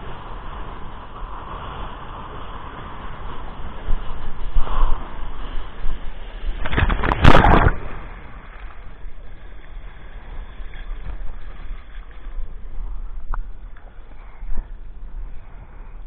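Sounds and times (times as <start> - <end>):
wind buffeting microphone: 0.0 - 16.0
board spray rushing: 3.9 - 8.8.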